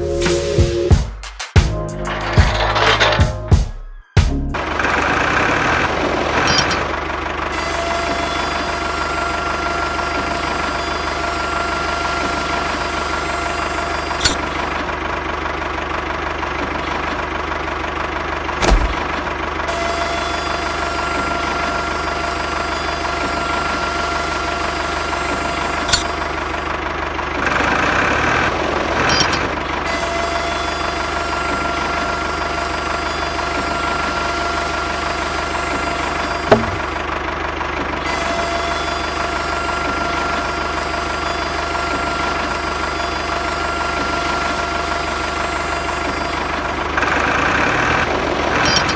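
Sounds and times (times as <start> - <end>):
tractor engine idling: 4.3 - 48.9.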